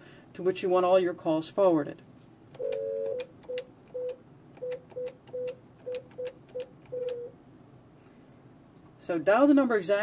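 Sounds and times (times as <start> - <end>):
phone keypad clicks: 2.6 - 7.3
two-tone beep: 2.6 - 7.3.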